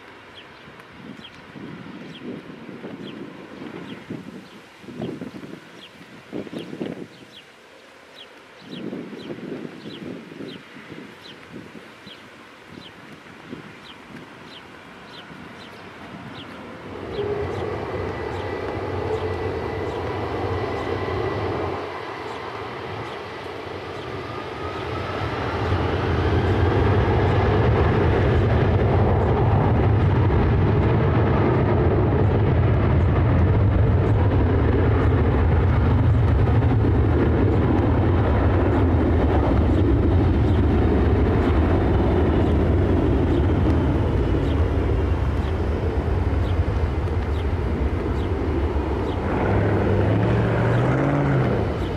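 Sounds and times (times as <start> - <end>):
jet engines spooling up: 15.7 - 51.9.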